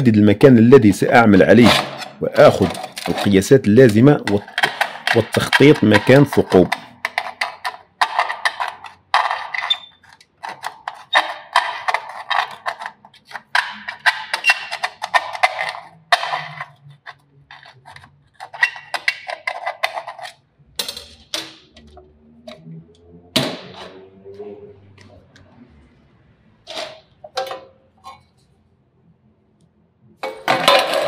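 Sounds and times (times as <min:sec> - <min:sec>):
welding rod scratching steel: 0:01.4 - 0:15.8.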